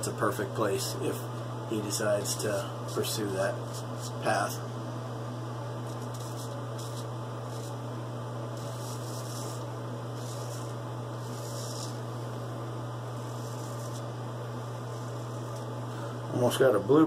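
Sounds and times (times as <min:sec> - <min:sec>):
low electrical hum: 0:00.0 - 0:17.0
razor scraping stubble: 0:02.9 - 0:04.4, 0:05.8 - 0:07.8, 0:08.5 - 0:12.3, 0:13.1 - 0:15.8.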